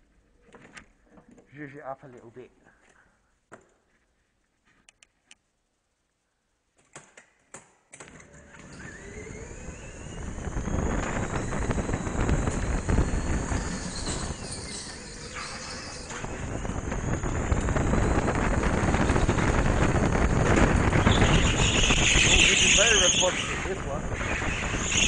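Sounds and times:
go-kart engine accelerating: 0:08.1 - 0:25.0
wind on microphone: 0:09.5 - 0:15.0, 0:16.1 - 0:25.0.

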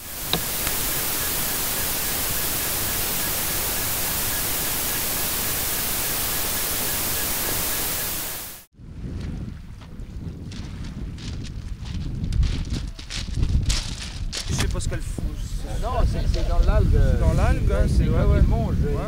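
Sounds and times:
faint pulsing thin tone: 0:00.0 - 0:08.6
loud static hiss: 0:00.0 - 0:08.7.

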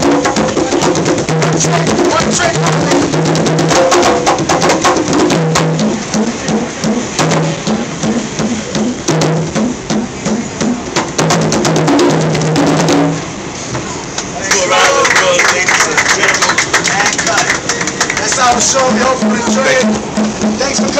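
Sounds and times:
congas played by hand: 0:00.0 - 0:13.4, 0:17.8 - 0:20.9.

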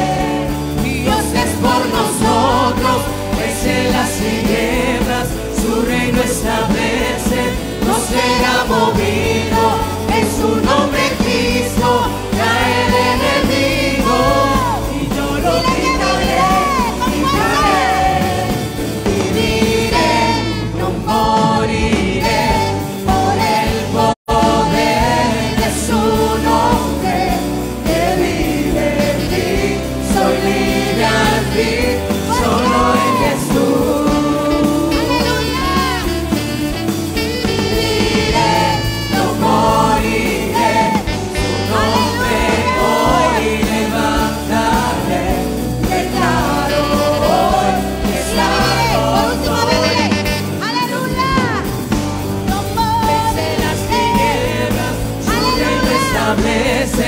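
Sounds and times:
group singing gospel song: 0:00.0 - 0:57.0
musical accompaniment: 0:00.0 - 0:57.0.

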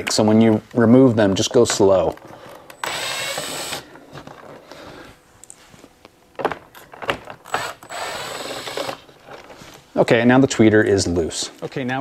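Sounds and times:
cordless drill spinning: 0:02.8 - 0:03.9, 0:07.5 - 0:09.0.

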